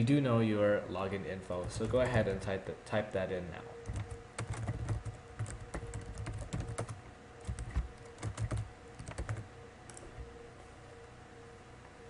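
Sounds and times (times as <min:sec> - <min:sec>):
keyboard typing: 0:01.6 - 0:02.4, 0:03.8 - 0:10.3.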